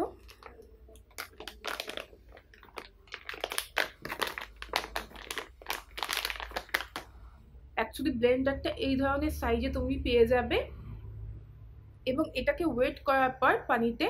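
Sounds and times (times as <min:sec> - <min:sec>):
packaging crackling: 0:00.1 - 0:07.2.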